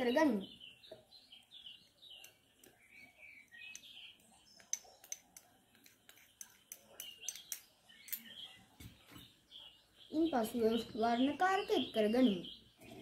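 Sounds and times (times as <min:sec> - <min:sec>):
faint bird chirps: 0:00.0 - 0:13.0
small objects clicking and tapping: 0:02.1 - 0:09.2.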